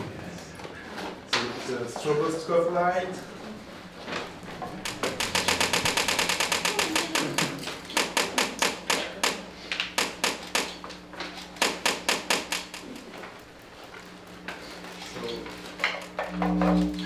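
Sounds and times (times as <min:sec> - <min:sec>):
steady electrical hum: 0:00.0 - 0:17.0
fast rhythmic electrical clicking: 0:04.1 - 0:17.0.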